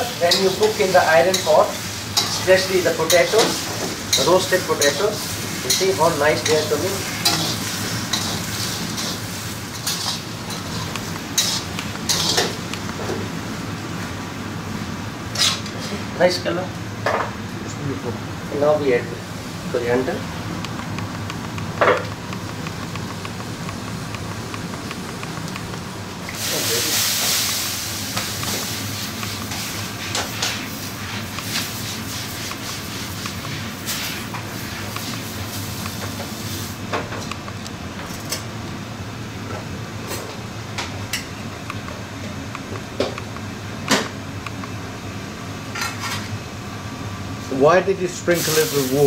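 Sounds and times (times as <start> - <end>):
water sizzling on hot griddle: 0.0 - 12.5, 26.2 - 36.8, 48.3 - 49.0
steady low hum: 0.0 - 49.0.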